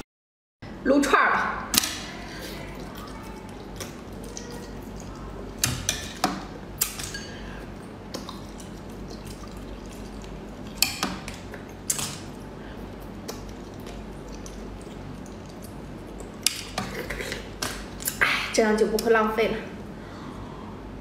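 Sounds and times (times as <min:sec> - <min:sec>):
wet slurps of snails: 0:02.1 - 0:18.2.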